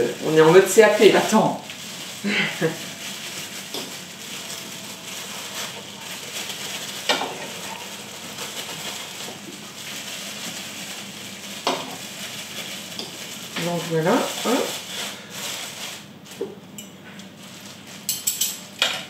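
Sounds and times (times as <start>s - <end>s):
kitchen hiss: 0.0s - 16.5s
spoons clinking against bowls: 18.1s - 19.0s.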